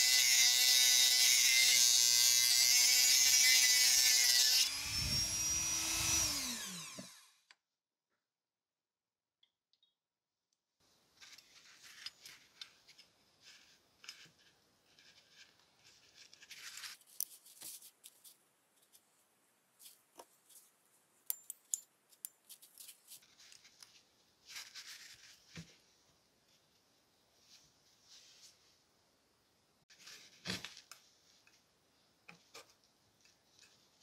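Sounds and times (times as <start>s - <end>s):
rustling: 11.1s - 21.3s, 22.1s - 28.9s.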